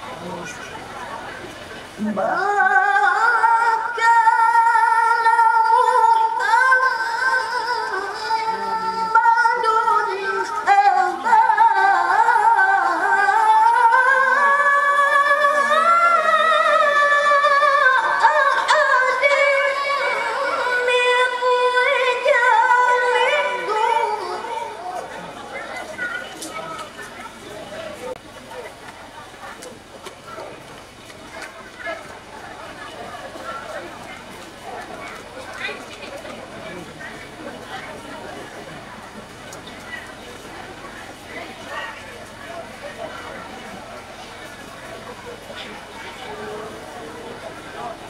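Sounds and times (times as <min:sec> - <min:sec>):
woman reciting melodically: 0:02.0 - 0:25.1.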